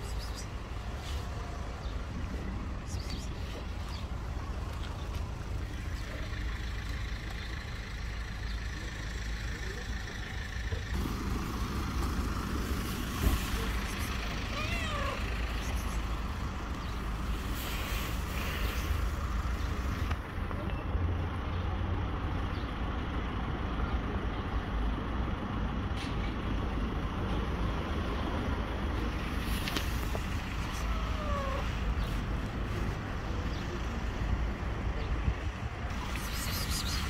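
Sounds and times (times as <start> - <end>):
street traffic rumble: 0.0 - 37.0.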